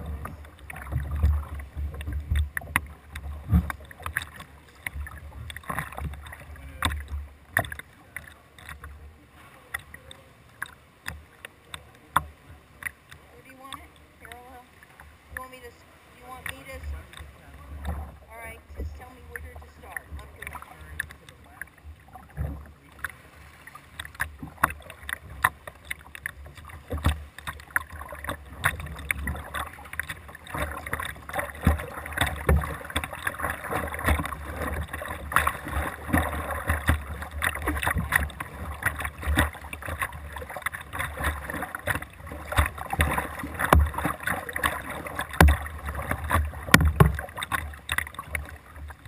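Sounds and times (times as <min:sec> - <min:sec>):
water dripping: 0:00.0 - 0:09.0, 0:09.7 - 0:49.0
kayak paddle splashing water: 0:00.0 - 0:49.0.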